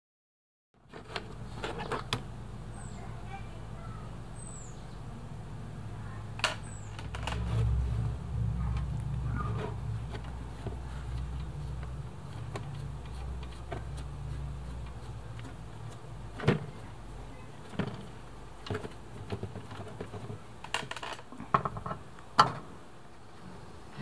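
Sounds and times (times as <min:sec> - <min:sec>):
low hum: 0:06.9 - 0:17.4.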